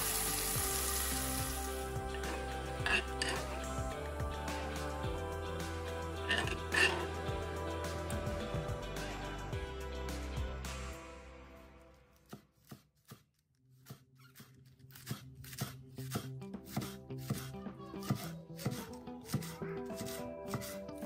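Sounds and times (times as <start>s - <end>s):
knife slicing on wooden board: 12.2s - 20.8s.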